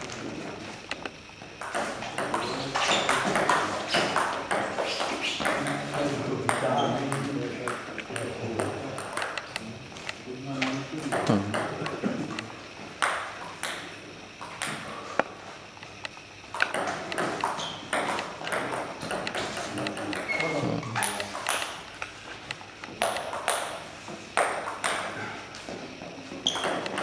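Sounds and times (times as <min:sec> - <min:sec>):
table tennis ball clicking: 0:06.5 - 0:09.6, 0:15.8 - 0:23.8, 0:26.4 - 0:27.0.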